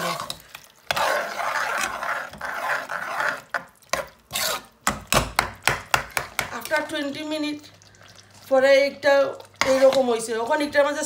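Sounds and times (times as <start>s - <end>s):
metal spoon scraping a pot: 0.0s - 5.0s.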